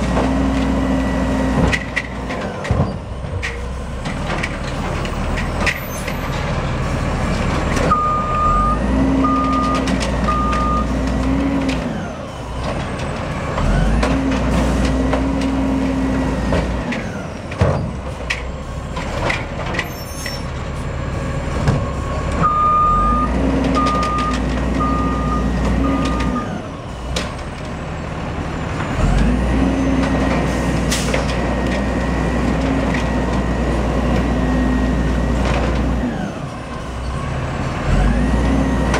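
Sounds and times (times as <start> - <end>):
knocks and clunks of carts: 0.0 - 22.8, 23.4 - 38.9
warning alarm short beeps: 22.4 - 26.5.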